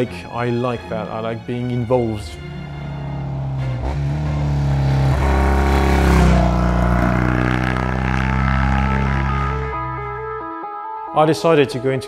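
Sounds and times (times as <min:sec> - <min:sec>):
motorcycle engine running: 0:02.5 - 0:10.0.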